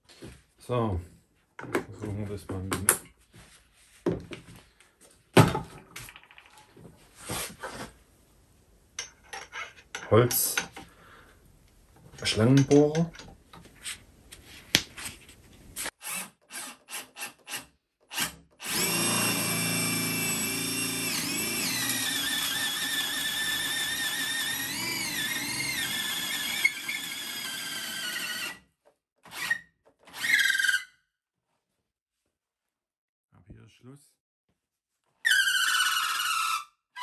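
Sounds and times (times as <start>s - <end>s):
rotary hammer motor whine: 18.6s - 28.6s.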